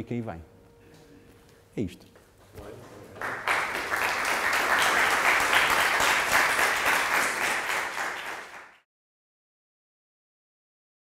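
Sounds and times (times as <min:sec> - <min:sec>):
audience applauding: 0:02.6 - 0:08.8.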